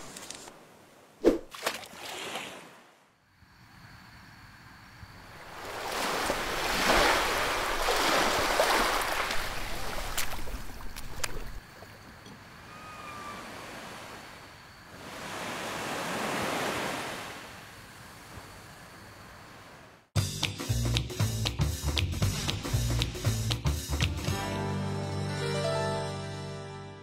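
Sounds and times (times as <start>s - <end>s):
ocean waves rushing: 5.4s - 11.6s, 13.0s - 17.6s.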